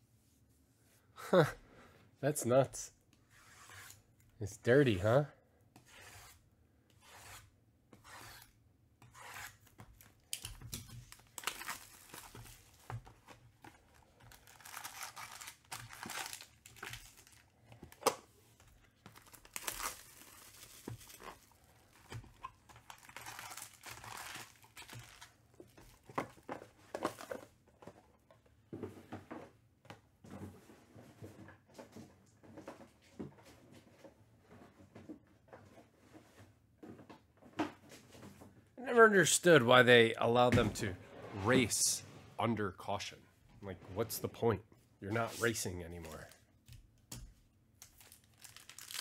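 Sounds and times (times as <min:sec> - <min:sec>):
card pack wrappers tearing: 0:10.1 - 0:12.8, 0:14.3 - 0:18.2, 0:19.1 - 0:25.4, 0:47.8 - 0:49.0.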